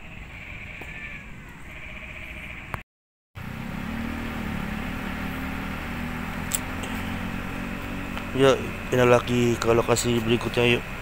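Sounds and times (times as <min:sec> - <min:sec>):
quiet outdoor background: 0:03.4 - 0:11.0
vehicle engine running: 0:03.4 - 0:11.0.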